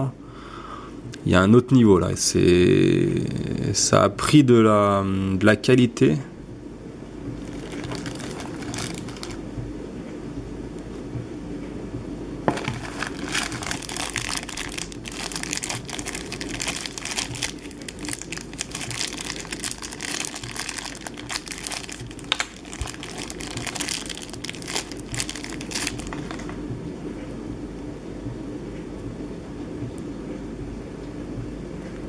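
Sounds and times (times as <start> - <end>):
plastic bag crinkling: 7.4 - 9.4, 12.5 - 26.6.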